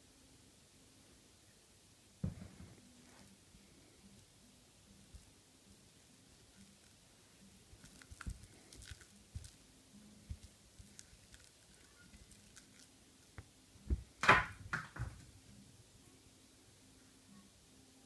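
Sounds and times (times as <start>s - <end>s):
thumps and scuffs: 2.2s - 2.8s, 13.9s - 15.2s.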